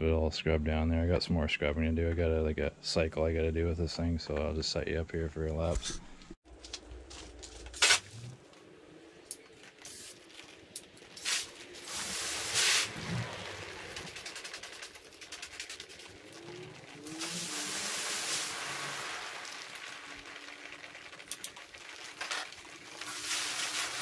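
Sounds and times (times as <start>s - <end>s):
hose nozzle water spurts: 9.2s - 24.0s
hiss of running water: 9.8s - 10.5s, 11.1s - 21.6s, 22.7s - 24.0s.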